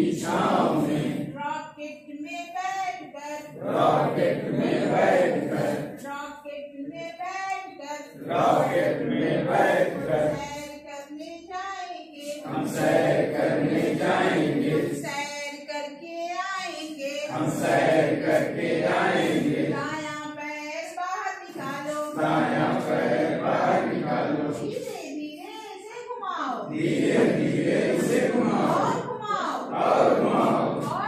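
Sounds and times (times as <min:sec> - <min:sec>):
group singing back: 0:00.0 - 0:01.4, 0:03.4 - 0:06.2, 0:08.1 - 0:10.6, 0:12.3 - 0:15.1, 0:17.3 - 0:20.1, 0:21.6 - 0:24.8, 0:26.7 - 0:31.0.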